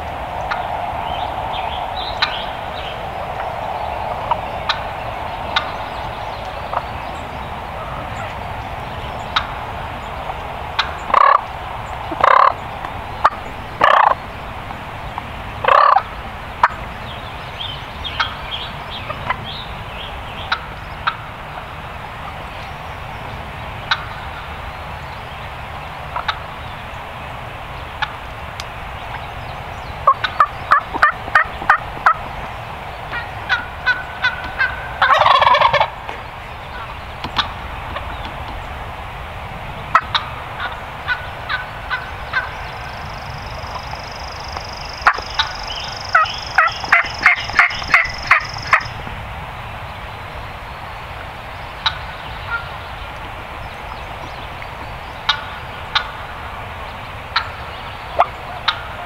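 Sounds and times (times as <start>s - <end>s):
outdoor background hiss: 0.0s - 59.0s
turkey gobbling: 0.4s - 0.7s, 2.0s - 2.7s, 9.3s - 9.6s, 10.8s - 11.5s, 12.1s - 12.6s, 13.2s - 14.2s, 15.6s - 16.0s, 23.9s - 24.5s, 26.1s - 26.4s, 30.0s - 32.3s, 33.1s - 38.1s, 39.9s - 42.6s, 45.0s - 48.9s, 51.8s - 52.7s, 55.3s - 56.3s, 58.2s - 59.0s.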